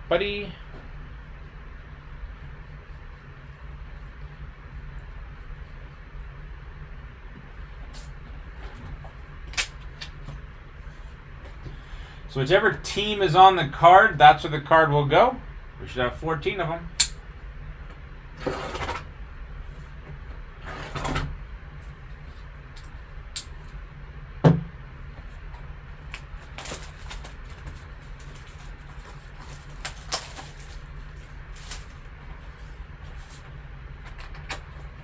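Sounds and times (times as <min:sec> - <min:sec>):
plastic crinkling: 0:26.1 - 0:32.1
shrink wrap cut and torn: 0:29.6 - 0:30.9.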